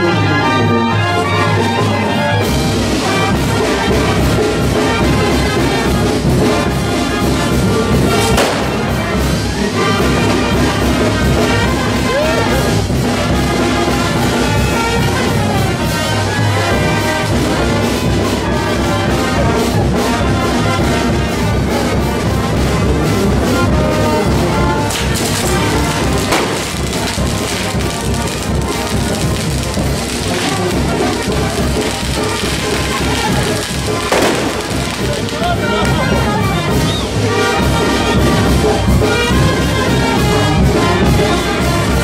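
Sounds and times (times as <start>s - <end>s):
brass band playing: 0.0s - 42.0s
sharp crack: 8.1s - 9.1s, 24.9s - 36.0s.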